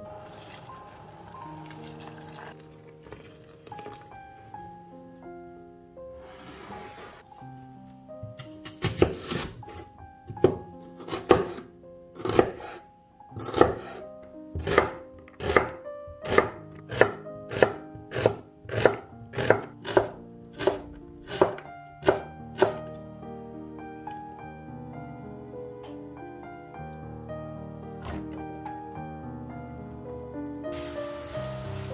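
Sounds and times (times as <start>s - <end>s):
soft background music: 0.0s - 31.9s
knife chopping on cutting board: 8.2s - 12.8s, 13.4s - 14.0s, 14.6s - 22.8s, 28.0s - 28.3s.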